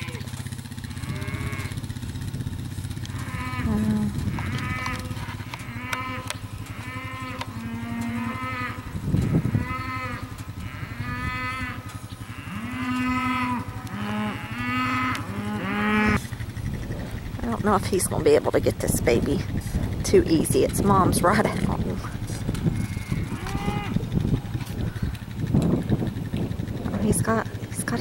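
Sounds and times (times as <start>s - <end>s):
cattle mooing: 0.0s - 27.3s
atv engine idling: 0.0s - 28.0s.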